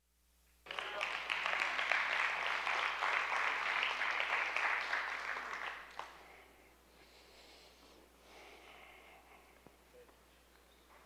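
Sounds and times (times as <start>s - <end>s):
crowd applauding: 0.6s - 6.4s.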